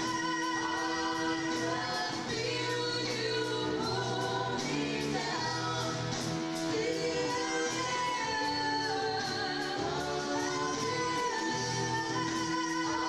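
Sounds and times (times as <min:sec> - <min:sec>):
person singing over instruments: 0:00.0 - 0:13.0.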